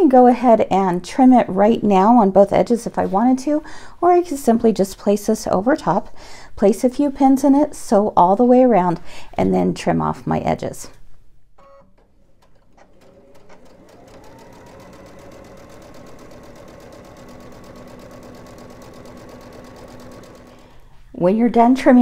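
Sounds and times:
sewing machine stitching: 11.6 - 21.0.

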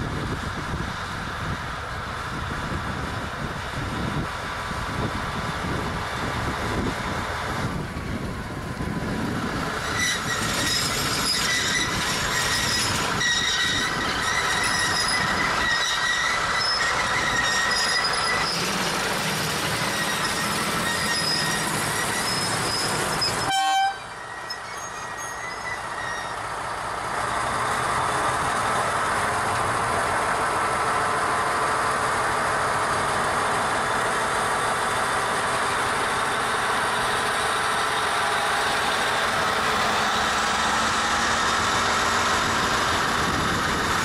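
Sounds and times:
diesel locomotive engine rumbling: 0.0 - 44.0
train wagon wheels squealing: 9.7 - 26.7.

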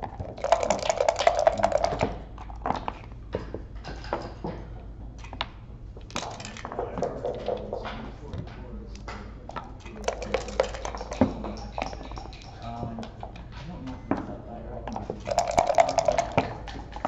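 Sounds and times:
dice rattling in a cup: 0.0 - 2.8, 9.9 - 13.2, 15.0 - 17.0.

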